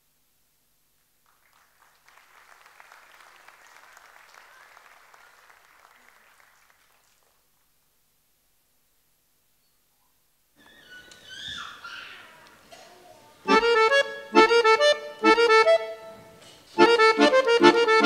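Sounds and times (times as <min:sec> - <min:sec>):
faint audience applause: 0:01.2 - 0:07.7.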